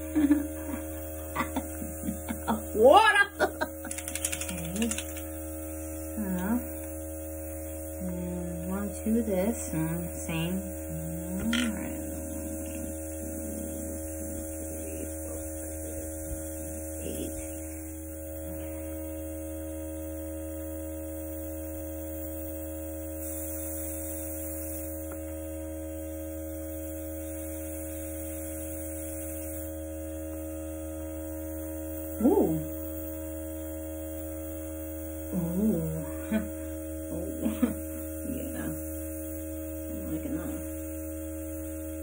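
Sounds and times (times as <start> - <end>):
compressor humming: 0.0 - 42.0
air hissing from airbrush: 22.1 - 25.2, 26.8 - 29.7.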